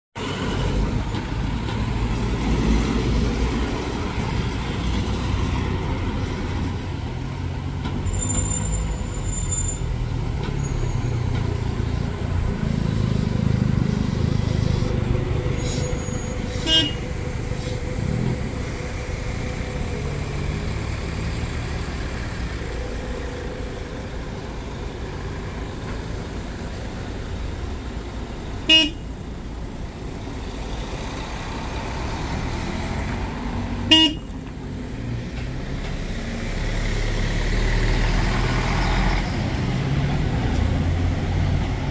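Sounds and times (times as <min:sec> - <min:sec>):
traffic: 0:00.1 - 0:41.9
coach diesel engine running: 0:00.2 - 0:41.9
short horn toots: 0:15.6 - 0:17.8.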